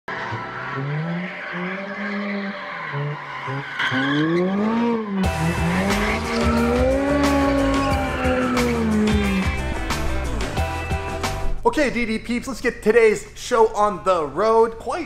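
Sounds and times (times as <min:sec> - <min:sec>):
sports car engine revving: 0:00.1 - 0:10.8
tyres squealing: 0:00.2 - 0:10.6.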